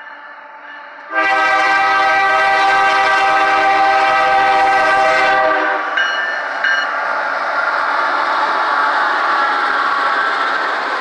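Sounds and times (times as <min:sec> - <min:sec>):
locomotive air horn chord: 0:01.1 - 0:06.0.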